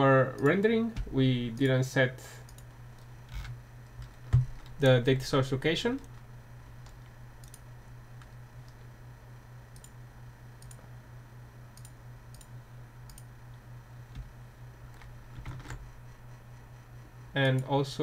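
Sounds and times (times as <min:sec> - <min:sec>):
low steady hum: 0:00.0 - 0:18.0
computer mouse clicks: 0:02.5 - 0:02.7, 0:06.8 - 0:07.6, 0:09.8 - 0:10.0, 0:10.6 - 0:10.8, 0:11.8 - 0:13.3.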